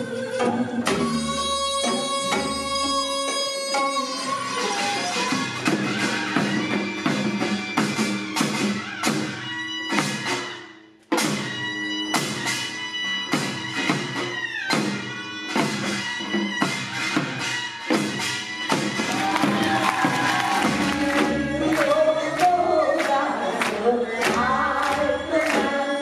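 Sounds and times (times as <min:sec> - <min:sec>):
steady drum strokes: 0:13.4 - 0:22.5.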